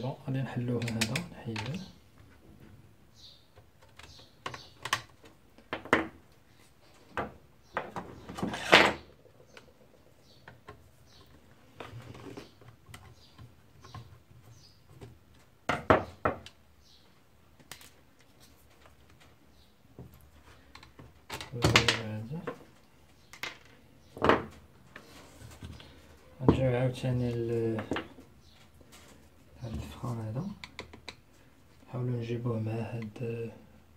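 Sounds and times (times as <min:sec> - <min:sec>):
plastic clicks and knocks: 0:00.8 - 0:01.8, 0:03.6 - 0:06.2, 0:30.5 - 0:31.2.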